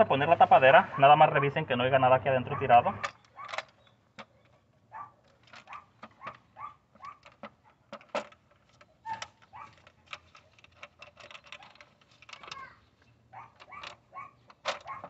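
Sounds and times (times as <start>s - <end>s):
metal engine parts clicking: 5.2s - 15.0s.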